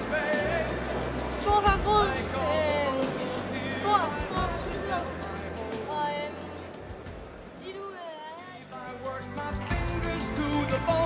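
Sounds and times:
rock song with heavy bass: 9.0 - 11.0.

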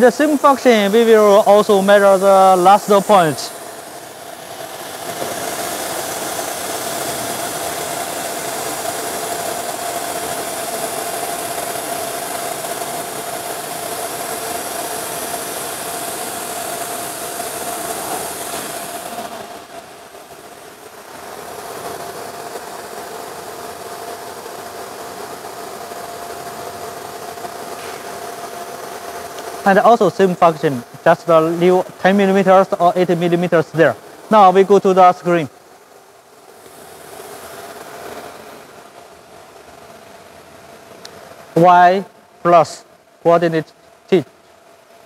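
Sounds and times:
cnc router motor whine: 0.0 - 29.4.

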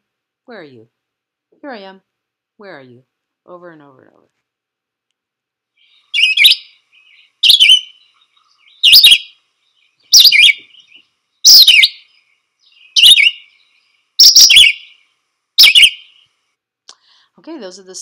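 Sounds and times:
bird singing short phrases: 5.8 - 16.4.

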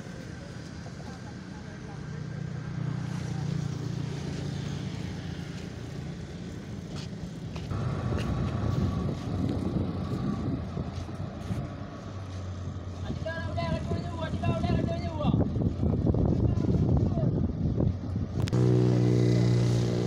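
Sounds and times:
boat engine running: 0.1 - 14.6, 17.9 - 20.0
steady whine: 18.3 - 20.0.

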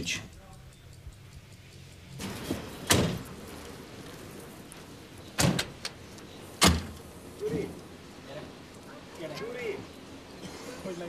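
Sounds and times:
outdoor background noise: 0.0 - 11.0
car doors shutting: 2.2 - 3.5, 5.2 - 7.7.

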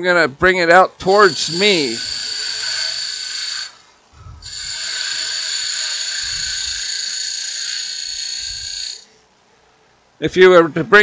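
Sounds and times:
lathe tool scraping wood: 1.1 - 3.8, 4.4 - 9.0.

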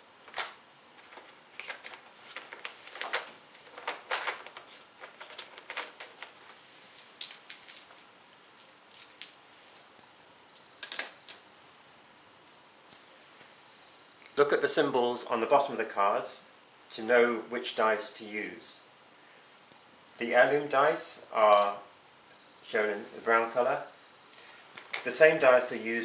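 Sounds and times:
dice clicking: 7.2 - 9.4.

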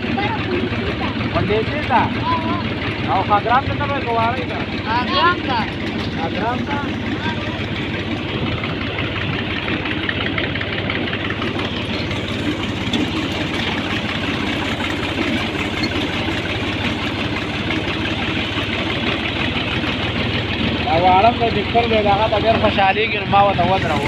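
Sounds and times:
tractor diesel engine running: 0.0 - 24.0.

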